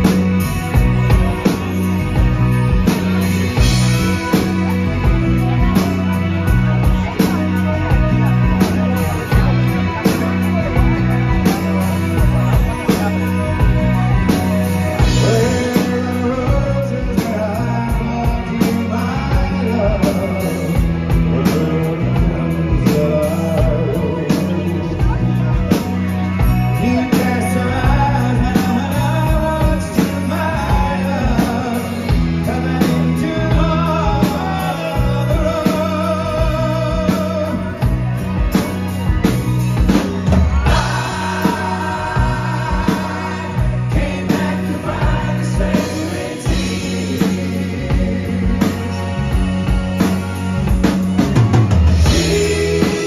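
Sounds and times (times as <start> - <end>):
man singing: 0.0 - 50.6, 51.9 - 53.0
acoustic and electric guitars: 0.0 - 53.0
bass guitar: 0.0 - 53.0
drums: 0.0 - 53.0.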